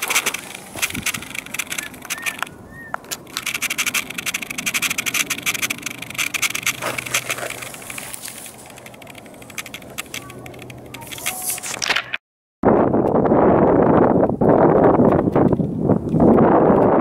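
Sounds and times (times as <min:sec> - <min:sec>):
dry grass crackling underfoot: 0:00.0 - 0:12.0.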